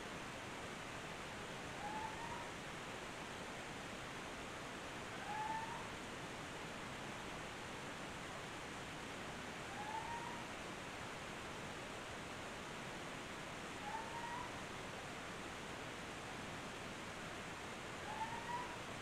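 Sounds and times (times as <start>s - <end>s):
field recording hiss: 0.0s - 19.0s.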